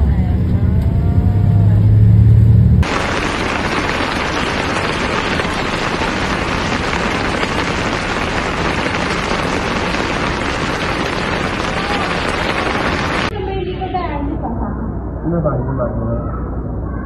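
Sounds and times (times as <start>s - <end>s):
floodwater rushing: 2.8s - 13.3s
heavy rain: 2.8s - 13.3s.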